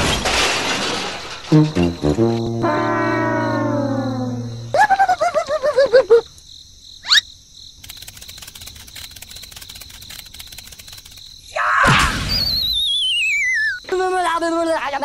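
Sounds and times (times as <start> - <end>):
cartoon squeaks: 1.5 - 5.5
crickets chirping: 1.6 - 15.0
wavy falling whistle: 2.2 - 5.2, 12.3 - 13.8.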